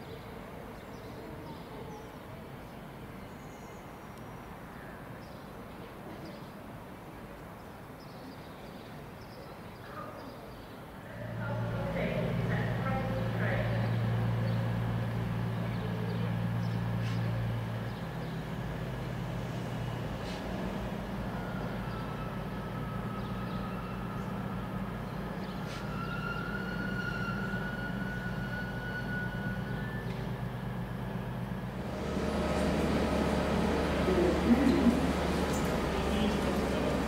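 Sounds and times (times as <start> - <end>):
train engine hum: 10.8 - 37.0.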